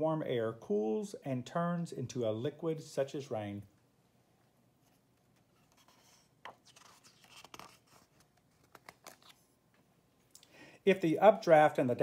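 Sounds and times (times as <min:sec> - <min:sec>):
paper page turning: 0:04.9 - 0:09.5.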